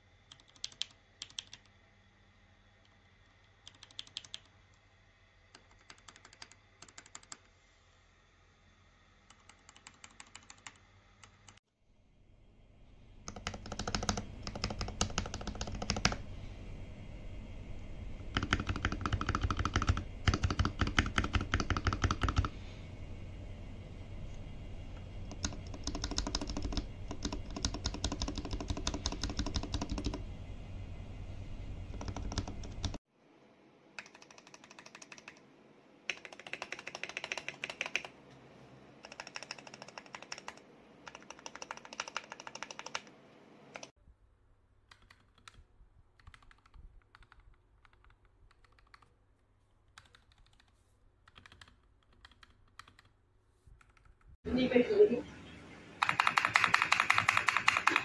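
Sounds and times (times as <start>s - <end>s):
mechanical keyboard typing: 0.3s - 1.7s, 3.6s - 4.5s, 5.5s - 7.5s, 9.3s - 11.6s, 13.3s - 16.2s, 18.3s - 22.6s, 25.3s - 30.2s, 31.9s - 33.0s, 34.0s - 35.4s, 36.1s - 38.2s, 39.0s - 43.1s, 43.7s - 43.9s, 44.9s - 49.1s, 49.9s - 53.2s, 53.8s - 54.3s, 56.0s - 58.0s.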